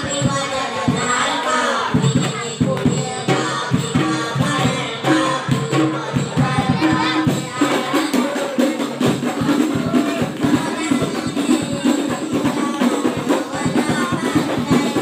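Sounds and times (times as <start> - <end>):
boy singing into a microphone: 0.0 - 15.0
frame drums beating a rhythm: 0.0 - 15.0.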